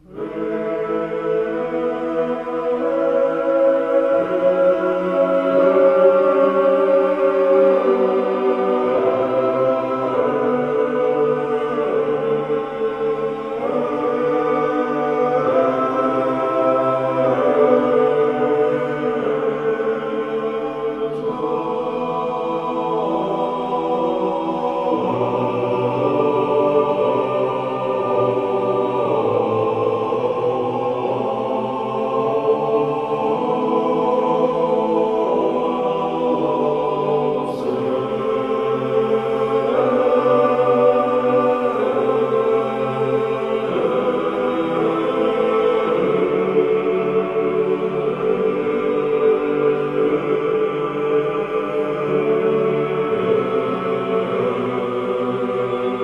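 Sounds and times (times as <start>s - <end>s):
choir singing held chords: 0.0s - 56.0s.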